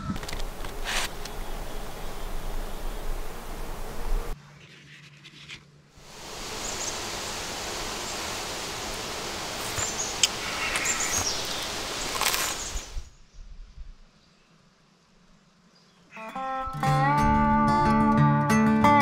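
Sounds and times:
wind rustling leaves: 0.0s - 4.4s, 6.0s - 16.1s
bird chirps: 6.5s - 7.2s, 9.6s - 13.0s.

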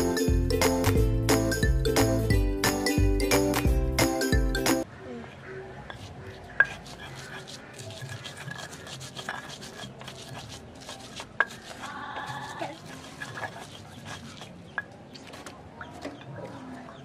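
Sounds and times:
stone pestle grinding in mortar: 5.9s - 16.6s.

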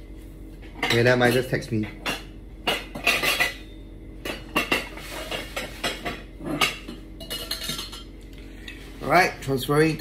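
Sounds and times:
dishes clinking and knocking: 0.6s - 8.2s.

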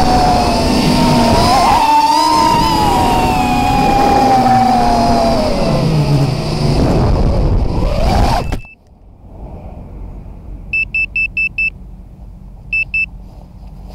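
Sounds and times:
drone motors whining: 0.0s - 11.6s
rushing air: 0.0s - 12.7s
quick high beeps: 10.7s - 11.8s, 12.7s - 13.1s.

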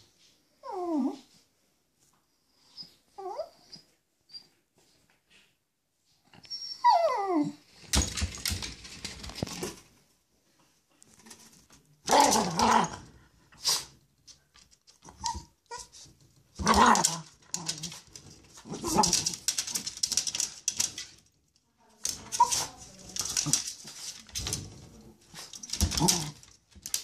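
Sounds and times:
dog whining: 6.4s - 7.6s
dog growling barks: 12.1s - 13.1s, 16.6s - 17.9s.

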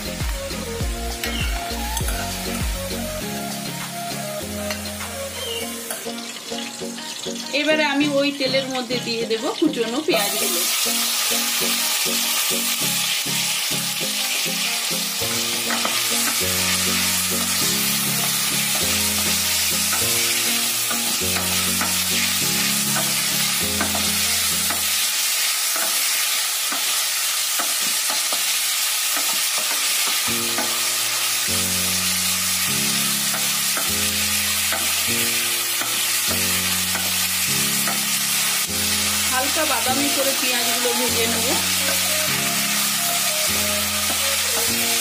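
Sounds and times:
onions sizzling in hot oil: 0.0s - 45.0s
quiet background tune: 0.0s - 45.0s.

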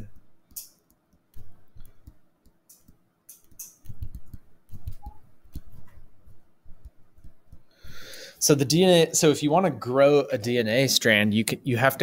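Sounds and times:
stylus tapping on touchscreen: 0.1s - 8.0s.

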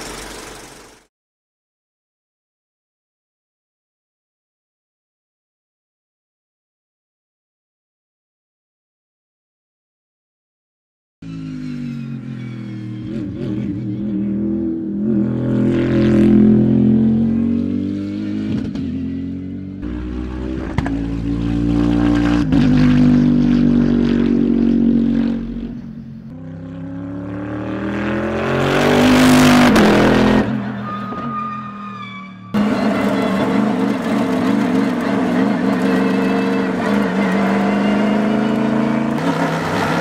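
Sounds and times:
race car engine revving: 0.0s - 1.0s, 11.3s - 30.8s, 32.6s - 40.0s.

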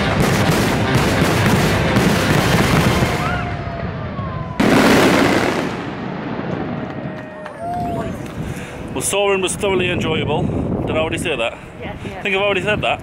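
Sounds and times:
firework boom: 0.0s - 7.2s
fireworks banging and crackling: 0.0s - 8.4s.

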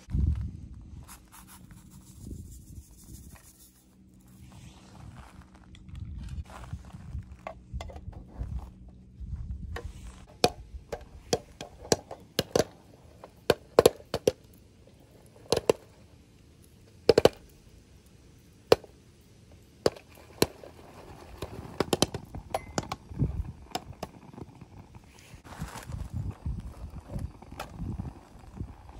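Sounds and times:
popcorn popping in a metal tin: 9.8s - 17.6s, 19.8s - 25.2s, 25.9s - 28.9s.

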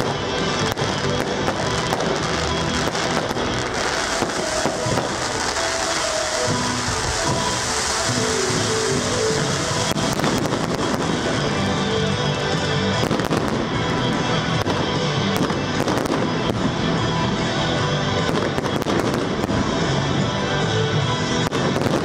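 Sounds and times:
fireworks bangs: 0.0s - 16.8s, 21.4s - 22.0s
loud music: 0.0s - 22.0s.

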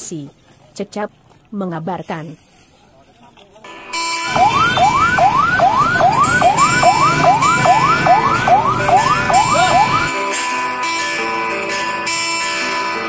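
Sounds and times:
guitar music: 3.7s - 13.0s
electronic siren yelping: 4.2s - 10.1s.

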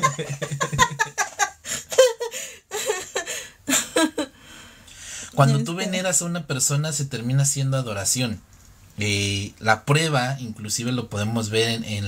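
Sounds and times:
people laughing: 0.0s - 3.3s.

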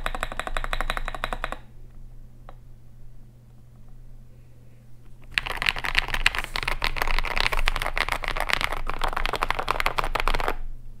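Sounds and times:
mechanical keyboard typing: 0.0s - 1.6s, 5.3s - 10.6s.

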